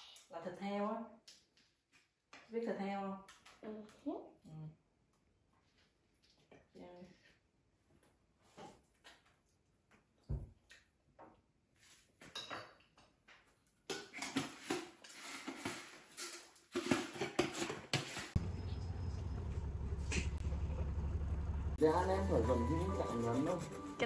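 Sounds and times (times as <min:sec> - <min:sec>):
dishes and cutlery clattering: 0:12.2 - 0:13.0
bus engine rumbling: 0:18.4 - 0:24.0.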